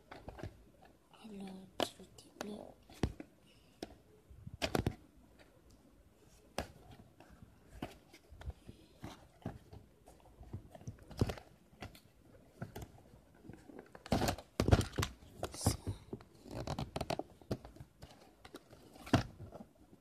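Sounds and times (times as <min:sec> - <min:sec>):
packaging crinkling and rustling: 0:07.6 - 0:20.0.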